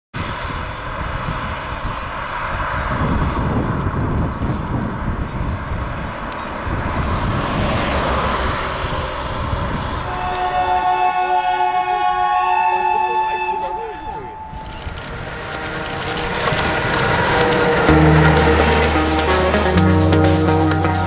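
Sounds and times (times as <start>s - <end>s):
moving vehicle rumbling: 0.2s - 12.2s, 13.6s - 21.0s.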